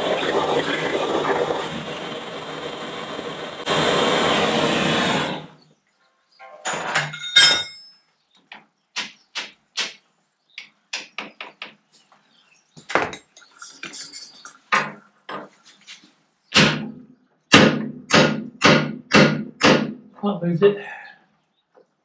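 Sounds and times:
hammer striking steel: 0:16.6 - 0:20.0.

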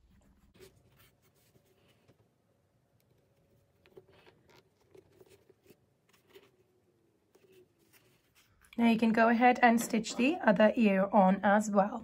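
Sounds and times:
soft yarn scratches and rustles: 0:00.0 - 0:02.2, 0:03.1 - 0:09.2.

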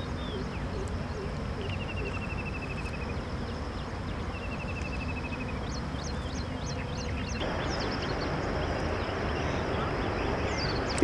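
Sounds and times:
steady rushing background: 0:00.0 - 0:11.0
bird whistling rising notes: 0:04.3 - 0:11.0.

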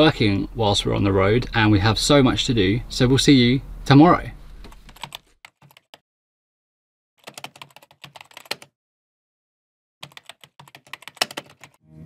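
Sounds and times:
keyboard key clicks: 0:10.0 - 0:11.7.

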